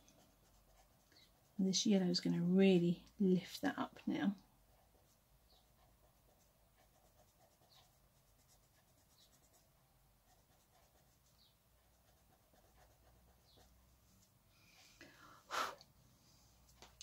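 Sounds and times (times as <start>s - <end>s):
pencil scratching on paper: 0.0s - 1.9s, 4.7s - 13.8s.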